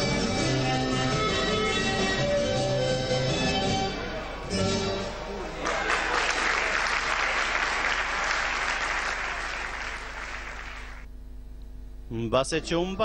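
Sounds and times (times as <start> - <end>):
faint hum: 4.0 - 12.9
audience applauding: 4.9 - 11.1.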